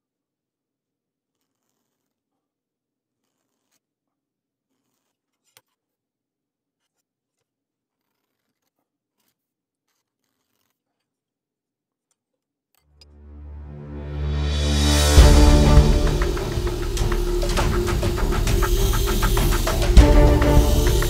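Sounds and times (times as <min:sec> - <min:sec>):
music: 0:13.0 - 0:21.0.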